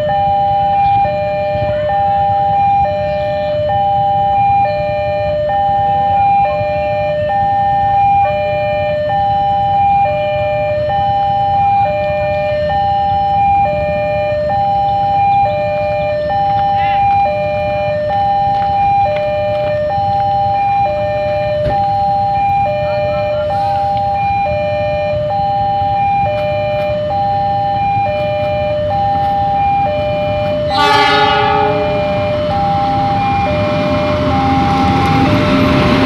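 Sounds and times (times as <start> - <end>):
level crossing two-tone alarm: 0.0 - 36.0
rumble of oncoming train: 0.0 - 36.0
train horn blast: 30.6 - 35.5.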